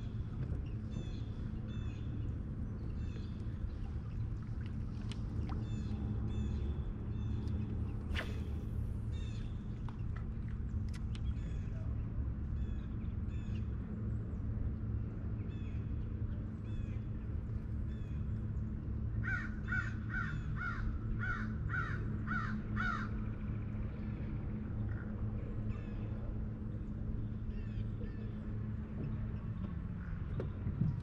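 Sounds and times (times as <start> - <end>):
steady low hum: 0.0 - 31.0
crow cawing: 19.2 - 23.1.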